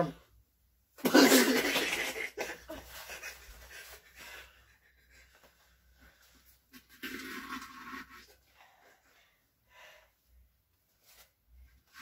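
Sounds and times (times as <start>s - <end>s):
person laughing: 1.1s - 5.4s.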